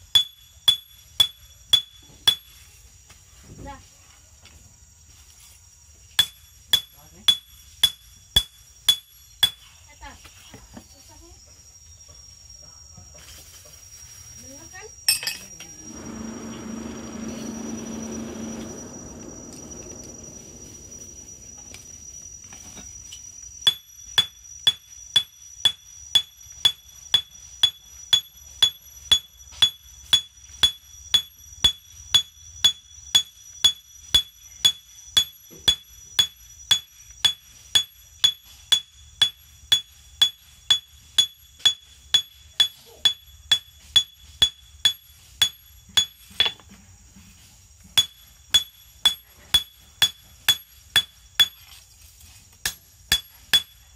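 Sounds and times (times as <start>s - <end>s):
hammer ringing on anvil: 23.7s - 46.6s, 48.0s - 51.6s, 53.1s - 53.8s.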